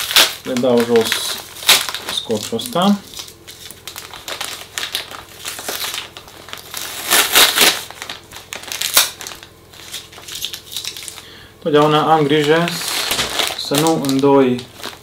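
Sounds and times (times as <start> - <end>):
plastic bag crinkling: 0.0 - 15.0
adhesive tape peeling: 6.9 - 8.0.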